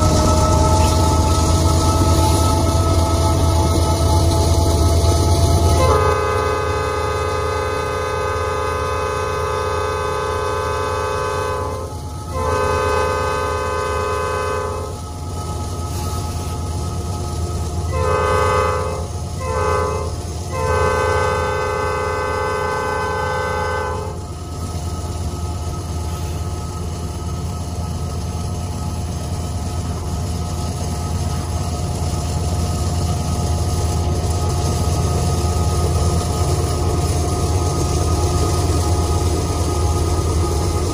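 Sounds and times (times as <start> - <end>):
diesel locomotive engine drone: 0.0 - 40.9
steady whining tones: 0.0 - 40.9
locomotive air horn blasts: 5.6 - 15.0, 17.9 - 24.2.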